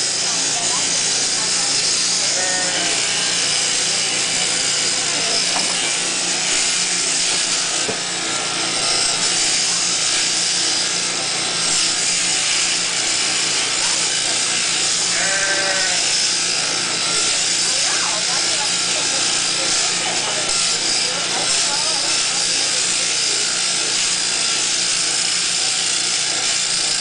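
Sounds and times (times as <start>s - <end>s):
shearing handpiece buzzing: 0.0s - 27.0s
sheep bleating: 2.2s - 3.0s, 15.1s - 16.2s.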